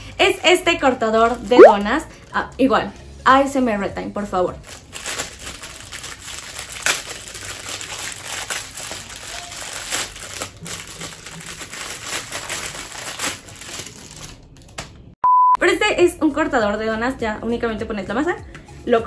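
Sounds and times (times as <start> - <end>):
plastic bag crinkling: 4.7 - 14.7.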